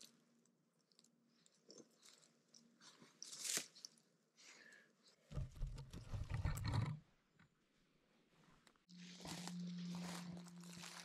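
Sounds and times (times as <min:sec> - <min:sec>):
crunching over dry pine needles: 0:08.9 - 0:11.0
mushrooms rustling in basket: 0:09.0 - 0:11.0.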